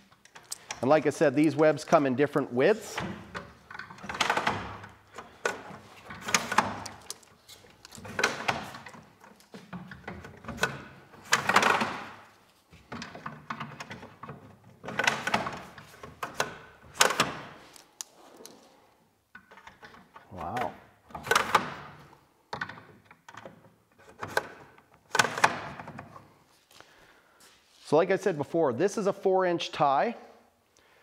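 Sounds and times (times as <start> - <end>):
plastic knocks and clacks: 2.9 - 17.6, 19.3 - 26.2.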